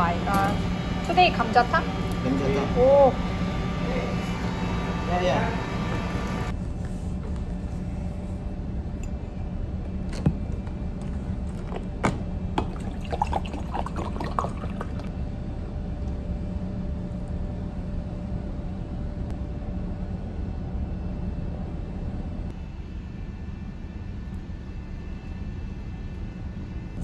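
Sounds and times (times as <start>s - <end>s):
low ship hum: 0.0s - 27.0s
water pouring into a mug: 12.6s - 15.1s.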